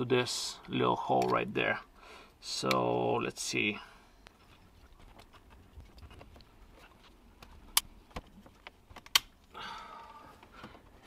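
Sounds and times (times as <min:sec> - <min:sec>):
faint plastic scratching: 0:04.2 - 0:09.0
plastic parts snapping clicks: 0:08.9 - 0:09.3.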